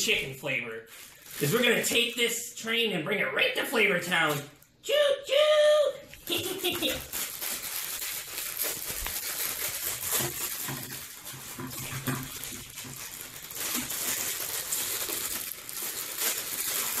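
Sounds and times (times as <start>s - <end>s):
plastic packets crinkling and tearing: 0.8s - 2.3s, 6.0s - 17.0s
dry noodles crackling: 0.9s - 2.3s, 6.0s - 17.0s.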